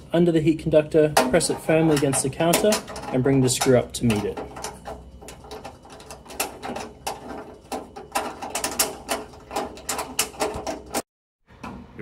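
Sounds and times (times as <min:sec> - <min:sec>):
screwdriver clicking and scraping metal: 0:01.2 - 0:11.0.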